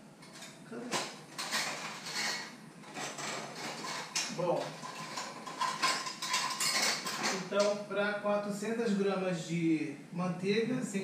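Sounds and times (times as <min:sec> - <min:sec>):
dishes and utensils clattering: 0:00.2 - 0:07.8.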